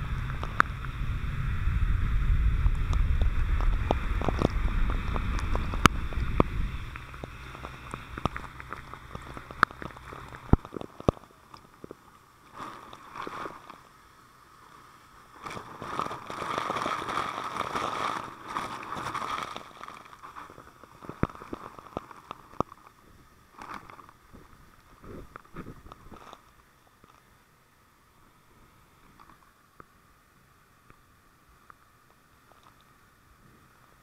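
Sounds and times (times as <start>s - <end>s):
water rushing from hose: 0.0s - 27.5s
droplets pattering on camera: 2.6s - 13.9s, 15.4s - 23.0s.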